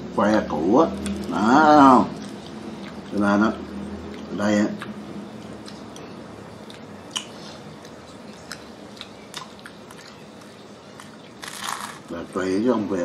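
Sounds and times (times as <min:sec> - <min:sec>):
person chewing food: 0:00.9 - 0:01.4, 0:02.1 - 0:12.1
soft mouth clicks and smacks: 0:02.2 - 0:03.2, 0:04.1 - 0:11.2.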